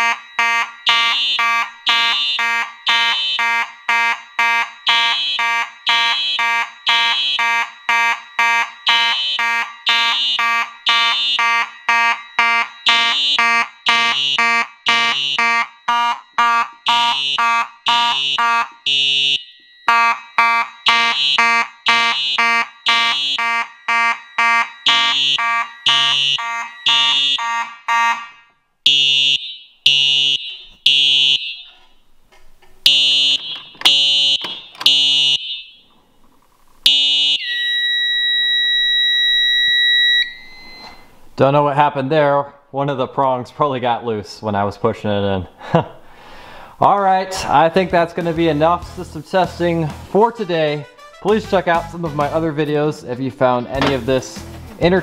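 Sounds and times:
fire alarm horn pulsing rapidly: 0.0s - 31.7s, 32.9s - 35.8s, 36.9s - 40.8s, 50.4s - 52.0s
fire alarm three-pulse pattern: 0.0s - 31.8s, 32.9s - 35.9s, 36.8s - 41.1s
steady high alarm tone: 0.0s - 31.8s, 32.9s - 35.9s, 36.9s - 41.1s.

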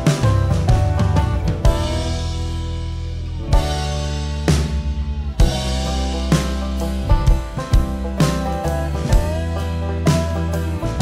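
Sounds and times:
background music with drums and guitar: 0.0s - 11.0s.

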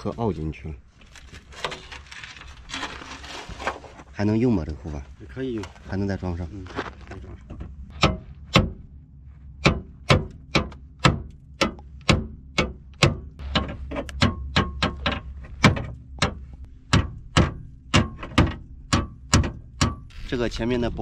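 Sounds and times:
hammer striking metal: 9.6s - 20.1s.

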